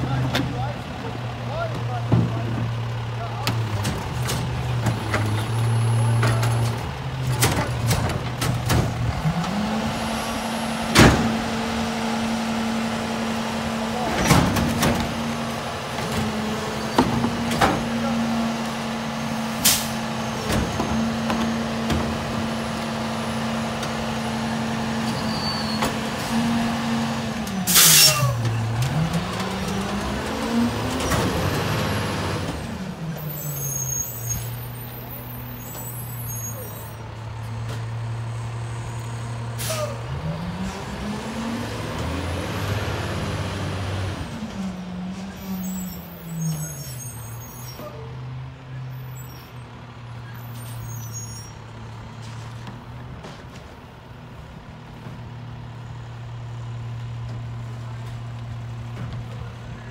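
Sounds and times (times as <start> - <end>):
garbage truck engine: 0.0 - 59.9
air brake hiss: 27.7 - 28.2, 39.6 - 40.0.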